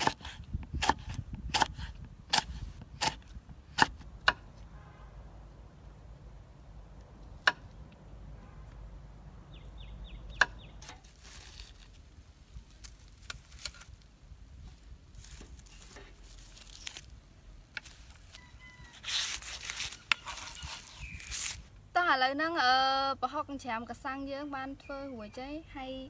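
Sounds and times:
dry leaf packets crinkling: 0:11.0 - 0:14.2, 0:15.1 - 0:21.7.

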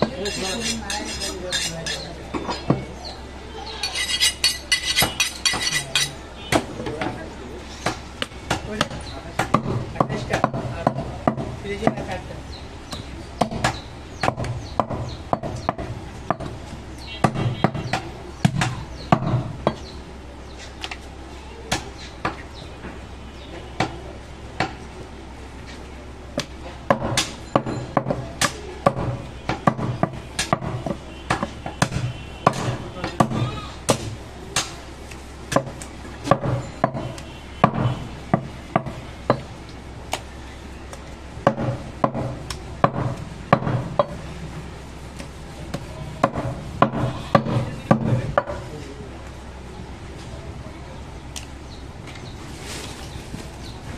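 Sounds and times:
cleaver chopping meat on wood: 0:12.9 - 0:16.6, 0:26.4 - 0:34.8, 0:35.5 - 0:39.5, 0:41.4 - 0:44.2, 0:45.7 - 0:48.6.

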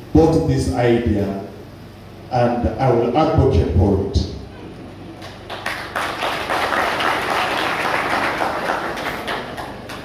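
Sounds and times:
audience applauding: 0:05.2 - 0:10.0.

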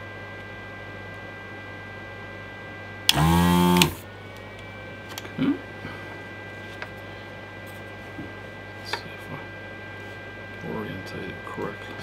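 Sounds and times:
vacuum pump buzzing: 0:03.0 - 0:07.2.

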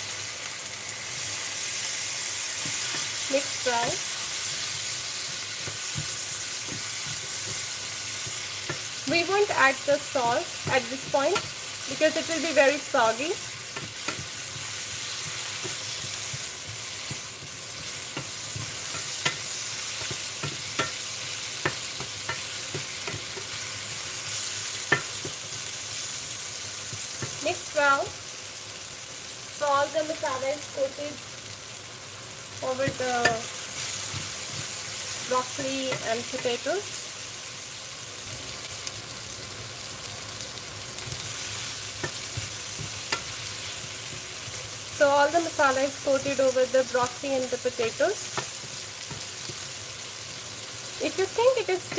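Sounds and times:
vegetables sizzling in hot oil: 0:00.0 - 0:51.9
wooden spatula knocking and scraping pan: 0:02.6 - 0:21.0, 0:21.6 - 0:23.8.

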